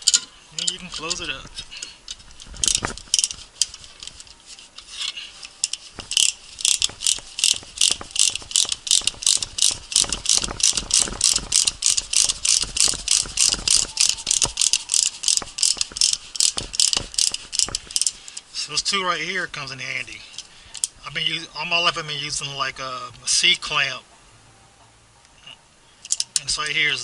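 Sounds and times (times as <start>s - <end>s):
ratchet pawl clicking: 0.0s - 4.9s, 5.5s - 18.4s, 20.4s - 20.9s.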